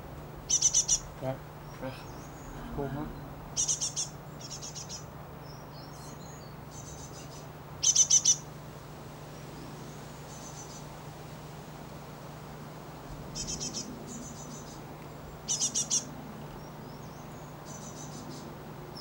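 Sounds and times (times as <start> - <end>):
steady low hum: 0.0 - 19.0
great tit chirping: 0.4 - 8.4, 13.4 - 19.0.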